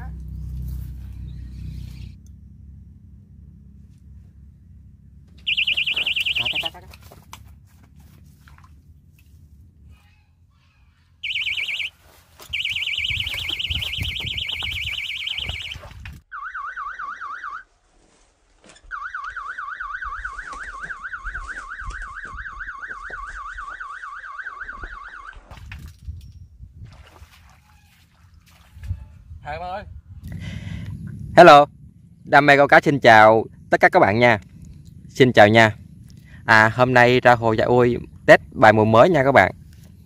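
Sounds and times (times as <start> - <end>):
bite alarm warbling beep: 5.5 - 6.8, 11.2 - 11.9, 12.5 - 17.6, 18.9 - 25.4.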